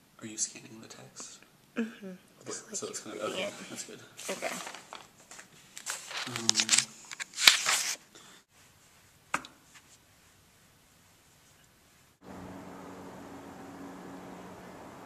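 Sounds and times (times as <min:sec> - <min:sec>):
rustling and handling noises: 0:03.5 - 0:11.8.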